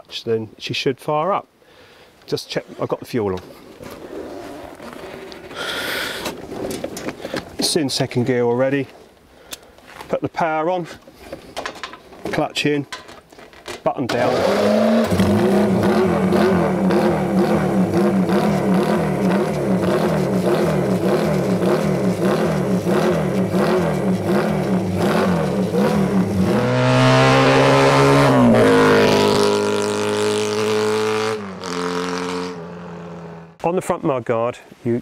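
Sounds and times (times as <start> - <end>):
motorcycle engine revving: 14.1 - 33.6
motorcycle pulling away: 14.1 - 33.6.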